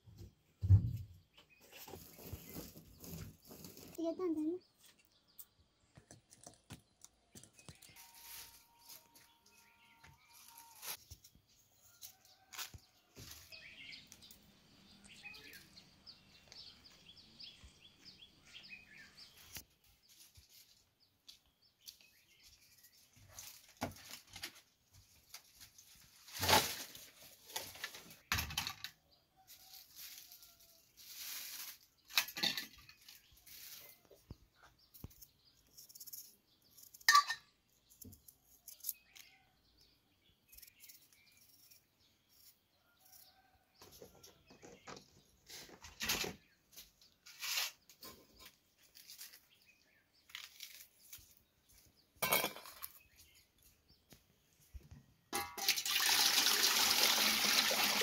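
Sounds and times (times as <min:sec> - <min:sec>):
birds chirping: 0:12.4 - 0:23.2.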